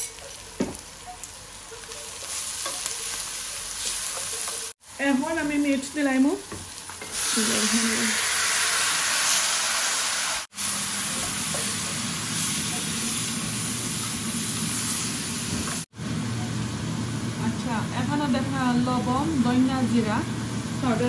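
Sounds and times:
meat sizzling in hot oil: 0:00.0 - 0:15.9.

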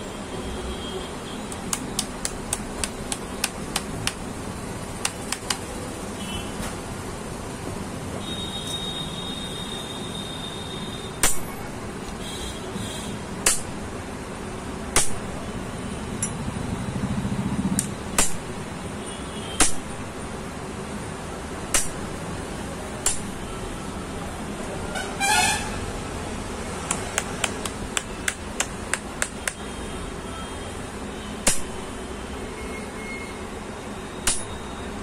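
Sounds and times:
pliers tapping steel rod: 0:01.5 - 0:04.2, 0:05.0 - 0:05.6, 0:26.9 - 0:29.6, 0:34.2 - 0:34.6.

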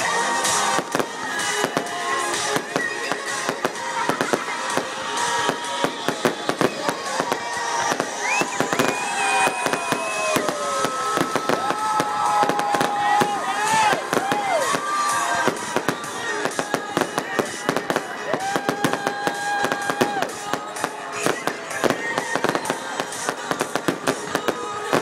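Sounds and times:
fireworks cracking and popping: 0:00.0 - 0:25.0.

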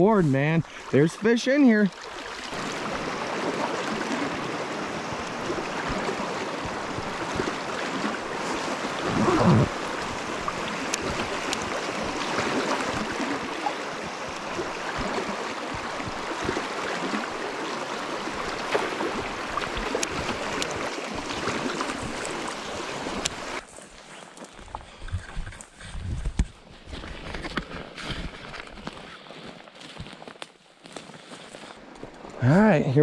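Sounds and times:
river water rushing: 0:00.0 - 0:23.6.

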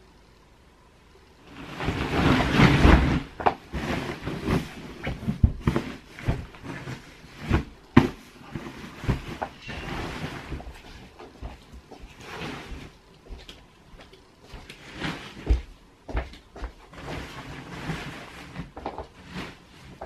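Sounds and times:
duvet whooshing and flapping: 0:01.4 - 0:11.1
duvet rustling: 0:01.4 - 0:20.0.

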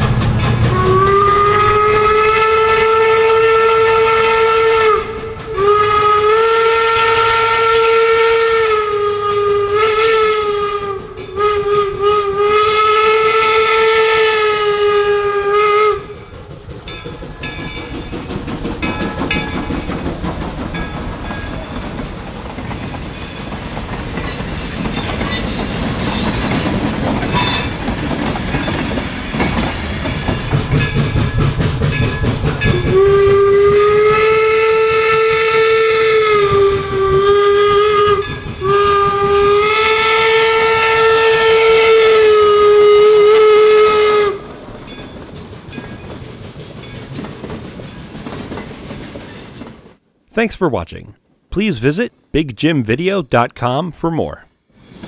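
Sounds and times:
train coaches rumbling past: 0:00.0 - 0:03.0, 0:16.0 - 0:34.0
steam whistle blasts: 0:00.7 - 0:16.1, 0:32.7 - 0:44.4.

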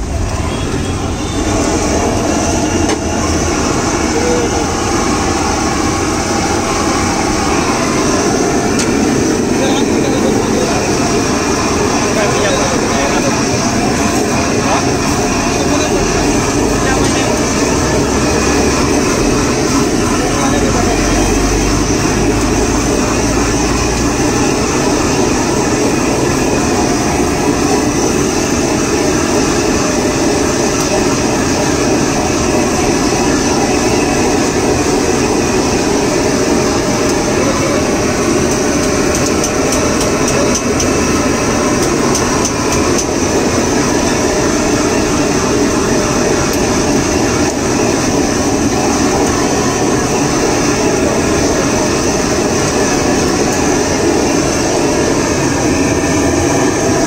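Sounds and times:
blowtorch hissing: 0:00.0 - 0:57.0.

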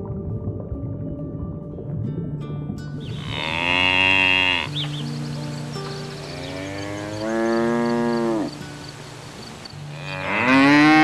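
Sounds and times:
cow mooing: 0:03.1 - 0:04.8, 0:06.2 - 0:08.6, 0:09.9 - 0:11.0.

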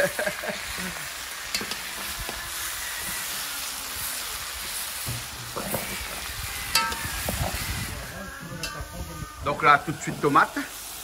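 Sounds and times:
chicken sizzling in a pot: 0:00.0 - 0:11.0
metal spoon clinking against pot: 0:06.7 - 0:07.1.

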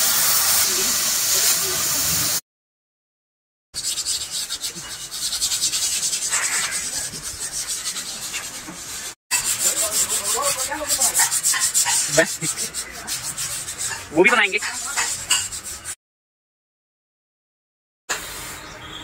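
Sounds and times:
abrasive rasping on steel: 0:03.8 - 0:16.0.

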